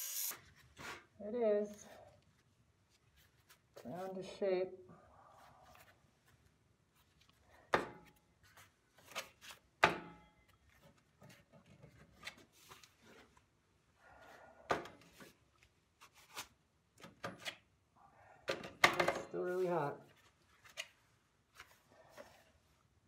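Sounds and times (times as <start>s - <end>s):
gloves rubbing: 0.2s - 4.4s.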